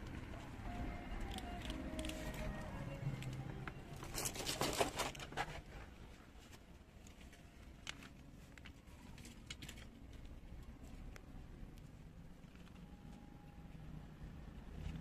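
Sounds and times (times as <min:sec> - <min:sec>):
dry leaves and twigs crackling: 0:01.2 - 0:05.5.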